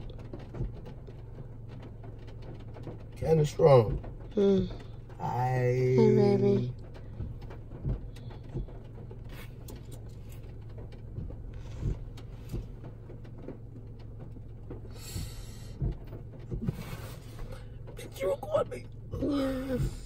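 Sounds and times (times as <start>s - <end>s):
car cabin hum: 0.0s - 20.0s
light taps: 6.6s - 19.3s.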